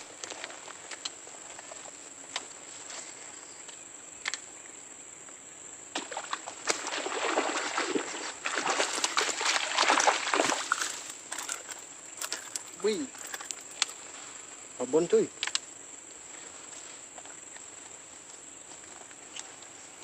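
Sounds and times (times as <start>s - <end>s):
crackling rustle: 0.0s - 4.5s, 7.9s - 20.0s
high-pitched insect drone: 2.9s - 20.0s
sharp clicks: 15.4s - 15.7s.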